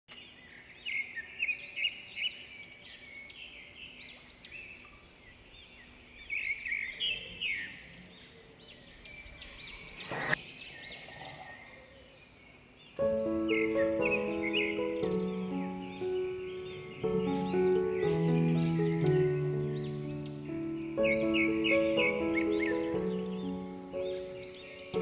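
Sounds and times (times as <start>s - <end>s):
small birds chirping: 0.1s - 25.0s.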